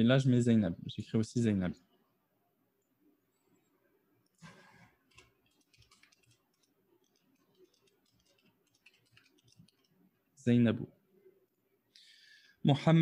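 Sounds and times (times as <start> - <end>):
faint keyboard typing clicks: 4.4 - 10.0.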